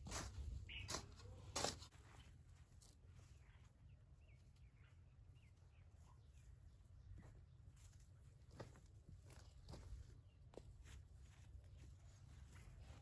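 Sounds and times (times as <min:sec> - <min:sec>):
faint bird chirps: 0:00.6 - 0:01.5, 0:03.2 - 0:07.9.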